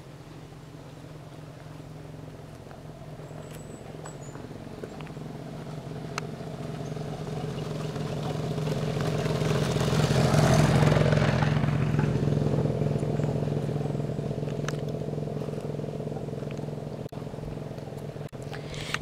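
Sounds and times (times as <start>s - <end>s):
vehicle engine humming: 0.0s - 19.0s.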